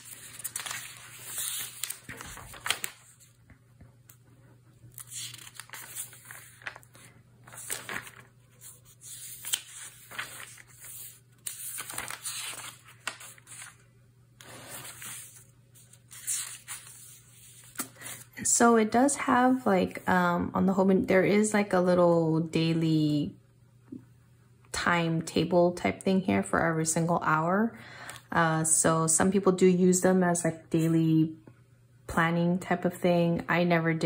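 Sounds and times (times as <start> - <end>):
paper pages turning: 0.0 - 3.5, 4.8 - 13.8, 14.4 - 18.3.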